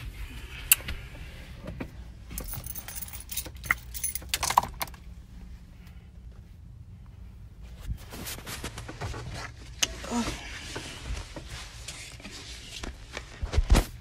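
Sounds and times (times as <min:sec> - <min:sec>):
keys jangling: 0:02.3 - 0:05.0.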